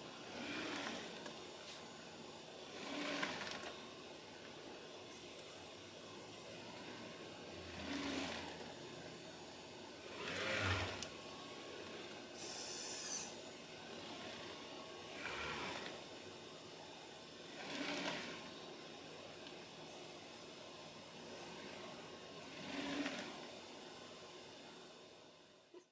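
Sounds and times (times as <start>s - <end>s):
robot arm motors whirring: 10.1s - 11.2s, 11.8s - 13.4s
steady hiss: 10.9s - 17.4s.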